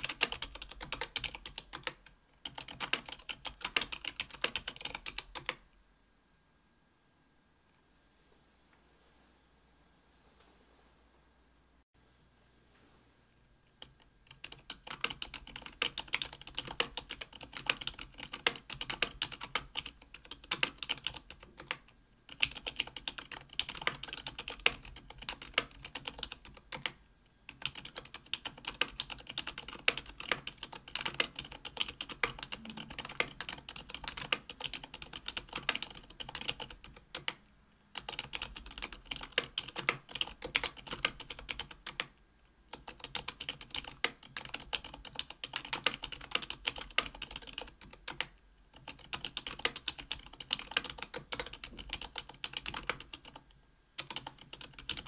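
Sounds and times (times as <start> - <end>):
mechanical keyboard typing: 0.0 - 5.6, 13.8 - 42.1, 42.7 - 55.0.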